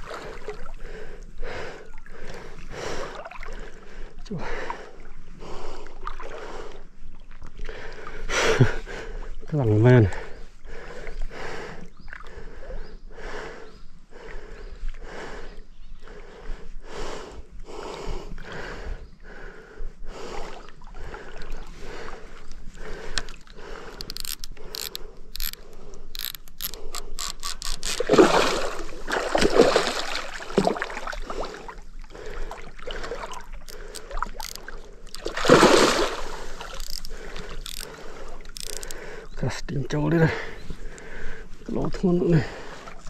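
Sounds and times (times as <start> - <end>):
fishing reel clicking: 23.1 - 28.2, 33.6 - 35.4, 36.6 - 39.0
fish splashing in water: 26.4 - 38.9.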